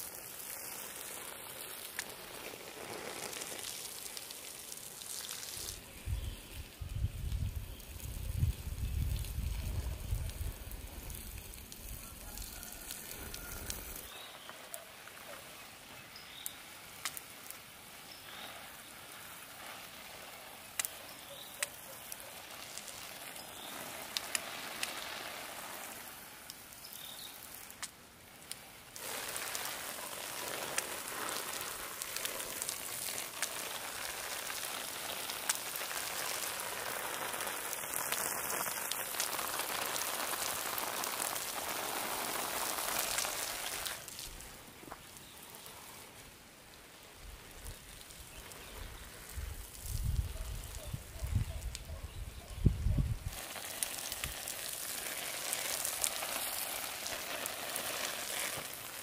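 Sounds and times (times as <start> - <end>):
rain falling steadily: 0.0 - 59.0
low wind rumble on microphone: 6.0 - 11.0, 49.4 - 53.3
sharp raindrop ticks: 16.4 - 17.3, 20.6 - 25.1, 26.4 - 44.3.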